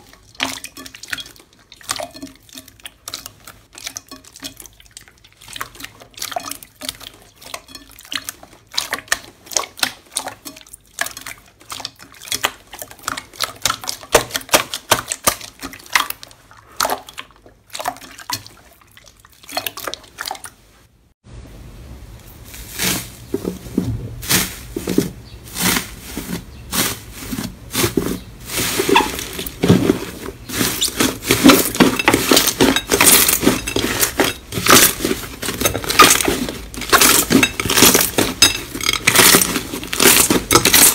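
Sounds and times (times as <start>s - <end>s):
slime squelching and popping: 0.0s - 20.5s, 26.7s - 40.9s
steady low hum: 21.2s - 26.1s.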